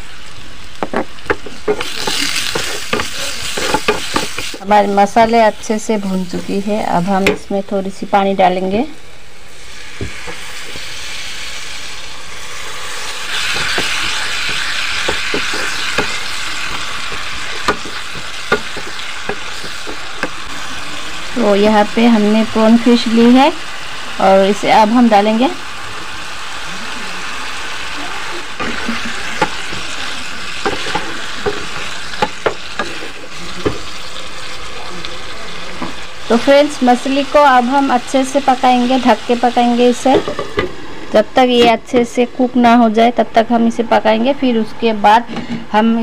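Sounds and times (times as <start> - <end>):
sizzling in a hot pan: 0.0 - 42.9
spatula tapping pan: 0.8 - 4.5, 13.4 - 20.4, 30.6 - 33.0.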